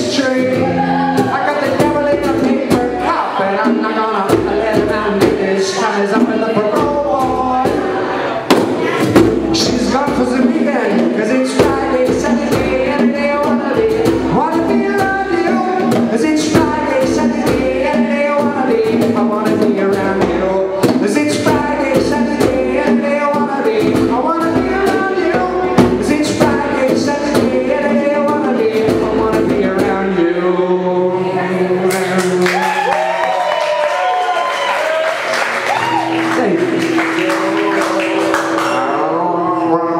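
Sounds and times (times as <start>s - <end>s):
strummed acoustic guitar: 0.0s - 32.4s, 36.0s - 39.9s
man singing: 0.0s - 32.9s, 35.8s - 39.9s
bongo hits: 0.4s - 30.0s.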